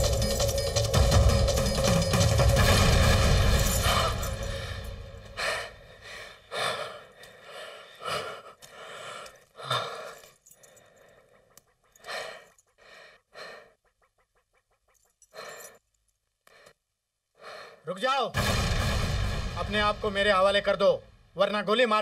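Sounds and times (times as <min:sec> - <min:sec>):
man gasping breaths: 0:03.8 - 0:14.4, 0:17.4 - 0:17.9
loud burst of noise: 0:18.4 - 0:21.3.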